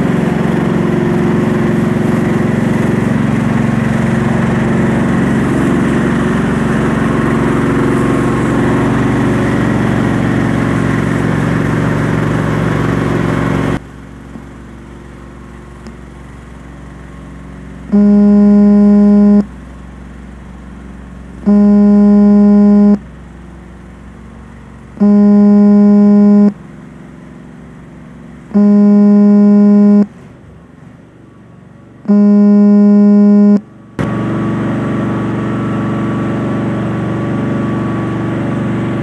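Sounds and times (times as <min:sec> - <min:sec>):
small engine running: 0:00.0 - 0:39.0
held electronic tones: 0:18.0 - 0:19.5, 0:21.5 - 0:23.0, 0:25.0 - 0:26.6, 0:28.6 - 0:30.1, 0:32.1 - 0:33.6.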